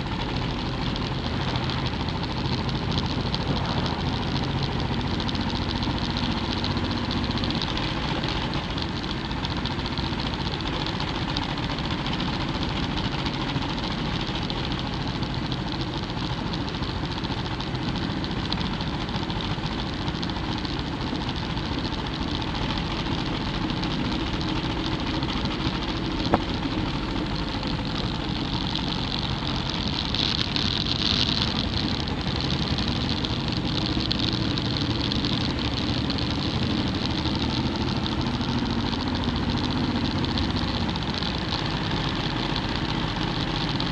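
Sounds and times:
motorcycle engine cruising: 0:00.0 - 0:43.9
wind rushing over microphone: 0:02.6 - 0:05.5.

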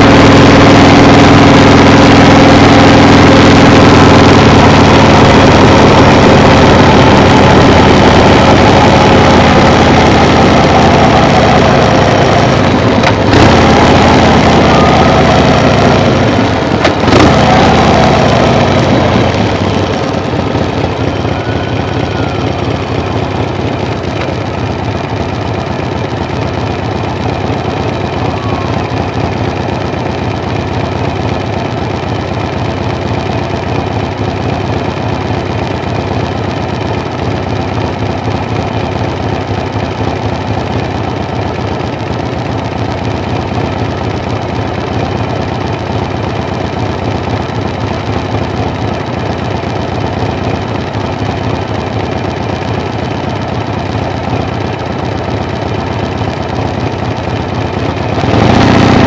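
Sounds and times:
engine drone: 0:00.0 - 0:59.0
sound falling in pitch: 0:17.6 - 0:24.2, 0:27.9 - 0:29.5.

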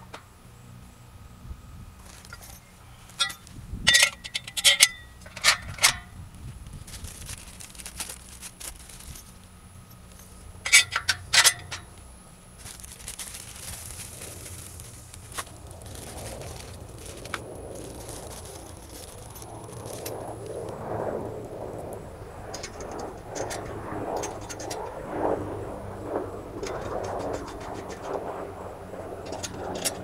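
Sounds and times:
metal bars clinking and clanking: 0:02.3 - 0:06.1, 0:10.6 - 0:11.9.

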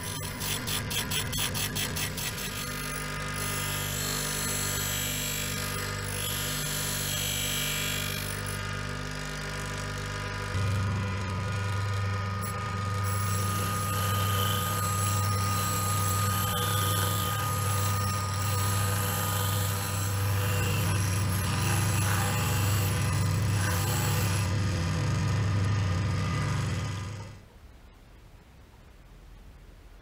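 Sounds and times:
drill bit grinding hiss: 0:00.0 - 0:08.6, 0:11.6 - 0:24.5
bench grinder humming: 0:00.0 - 0:27.4.

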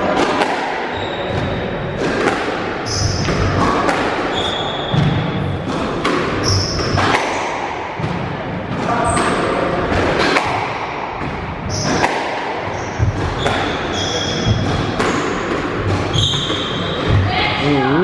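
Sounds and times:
squash ball hits: 0:00.0 - 0:17.5
shoes squeaking on wooden floor: 0:16.1 - 0:17.5.

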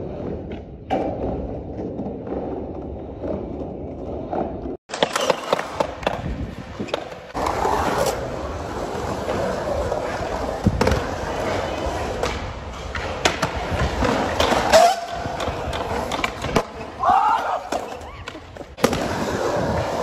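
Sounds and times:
skateboard wheels rolling on concrete: 0:00.0 - 0:20.0
skateboard clacking on ground: 0:04.9 - 0:07.5.

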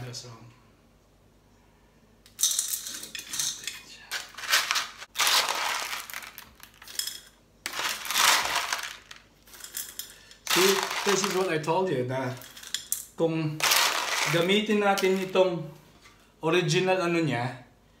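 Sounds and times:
pebbles clattering into glass bowl: 0:02.4 - 0:11.6, 0:12.3 - 0:13.0, 0:13.6 - 0:15.4.

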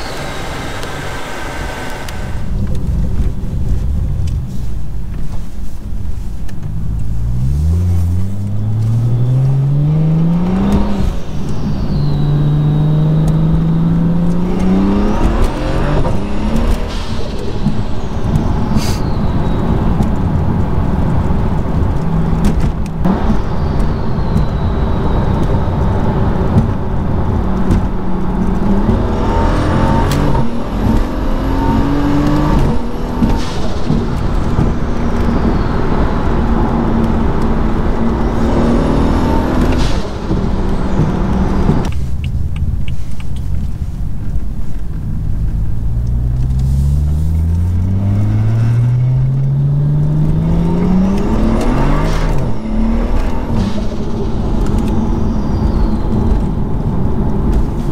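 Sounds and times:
car engine accelerating: 0:00.0 - 0:57.9.

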